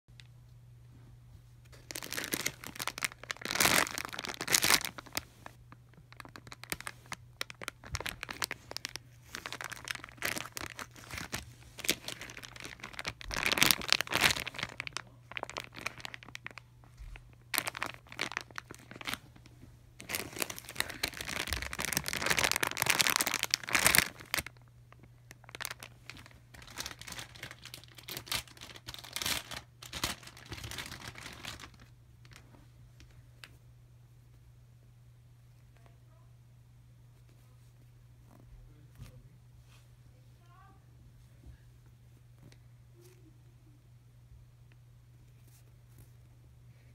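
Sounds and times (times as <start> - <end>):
plastic packaging crinkling: 1.7 - 32.5.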